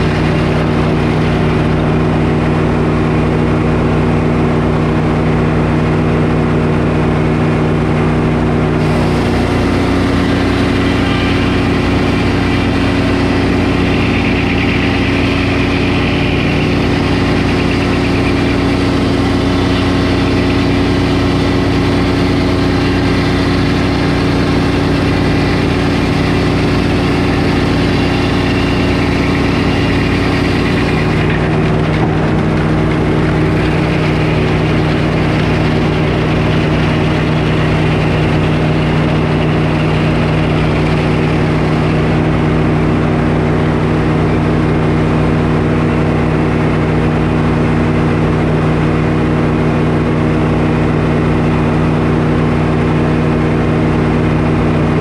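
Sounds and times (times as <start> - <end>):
saw blade cutting board: 0.0 - 2.0, 8.8 - 42.6
engine running: 0.0 - 55.0.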